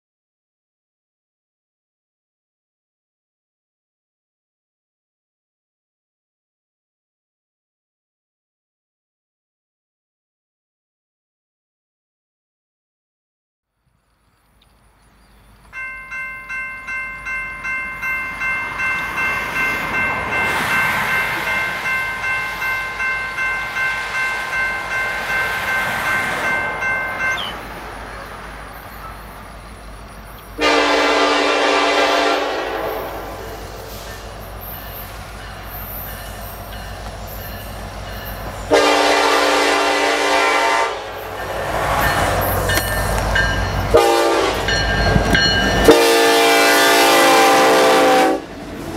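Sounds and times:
train rumble: 14.0s - 48.9s
crossing bell ringing: 15.4s - 48.4s
locomotive air horn blasts: 30.6s - 34.0s, 38.7s - 41.3s, 43.9s - 44.8s, 45.8s - 48.5s.

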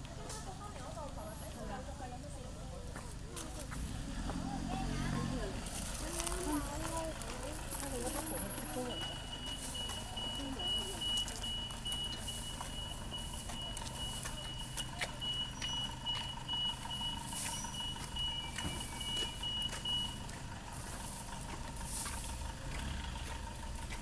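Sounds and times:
vehicles idling: 0.0s - 24.0s
rapid electronic beeps: 8.3s - 20.2s.

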